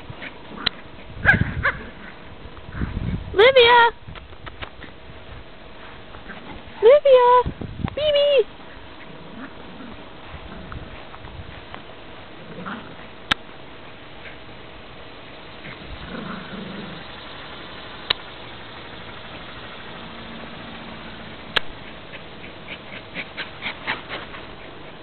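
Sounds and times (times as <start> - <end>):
steady background noise: 0.0 - 25.0
sharp clicks: 18.0 - 18.3.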